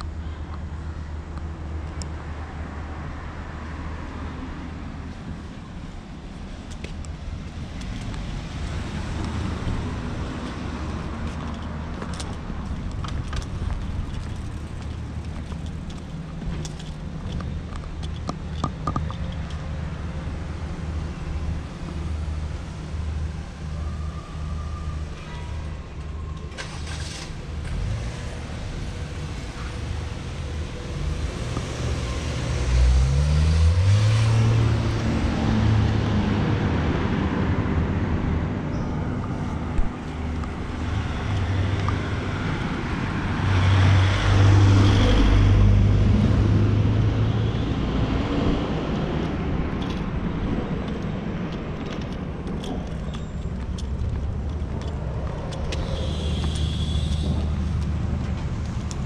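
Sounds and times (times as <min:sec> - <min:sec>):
low traffic rumble: 0:00.0 - 0:59.0
vehicles passing on street: 0:00.0 - 0:59.0
vehicle engine accelerating: 0:26.5 - 0:59.0.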